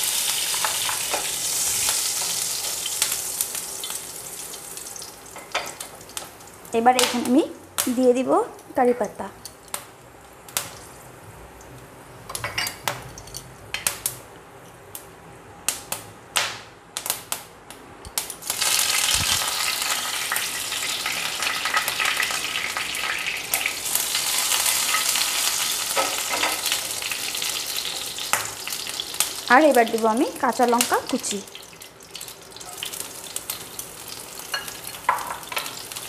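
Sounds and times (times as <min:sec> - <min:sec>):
leaves sizzling and spluttering in oil: 0:00.0 - 0:08.4, 0:18.3 - 0:36.0.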